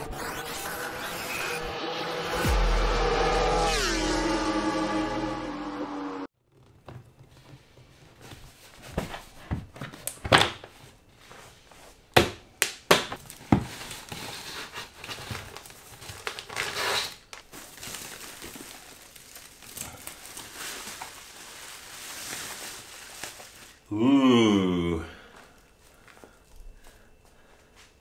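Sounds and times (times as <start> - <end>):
cardboard and bubble wrap rustling: 6.4 - 12.1, 13.0 - 23.9.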